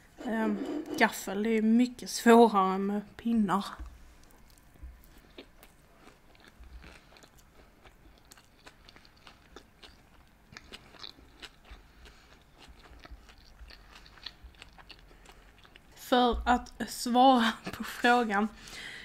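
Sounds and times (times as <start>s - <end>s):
person chewing: 4.2s - 16.0s.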